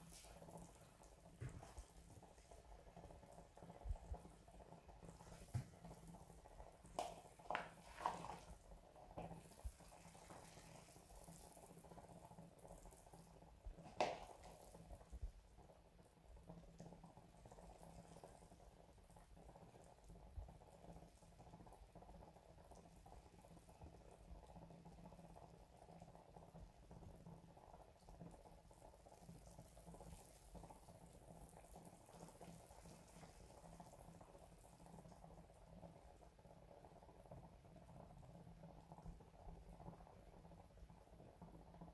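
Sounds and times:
broth bubbling in a pot: 0.0s - 41.9s
sharp pops and splashes: 5.1s - 12.0s, 13.8s - 15.2s.

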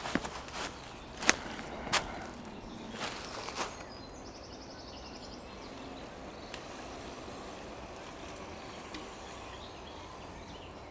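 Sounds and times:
low background rumble: 0.0s - 10.9s
faint clicks: 6.5s - 6.7s.

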